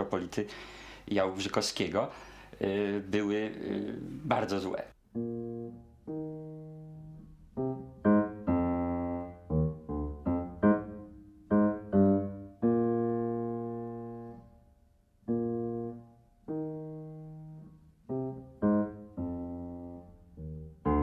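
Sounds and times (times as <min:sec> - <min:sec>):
slow solo piano: 0:05.2 - 0:14.4.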